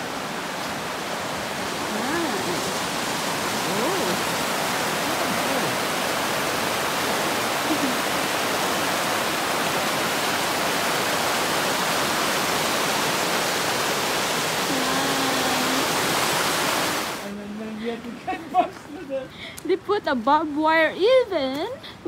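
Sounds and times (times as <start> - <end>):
river rapids rushing over rocks: 0.0 - 17.2.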